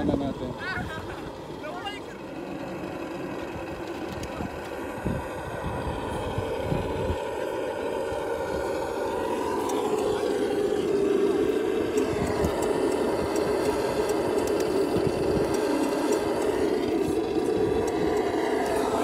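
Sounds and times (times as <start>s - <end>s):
electric motor whine: 0.0s - 19.0s.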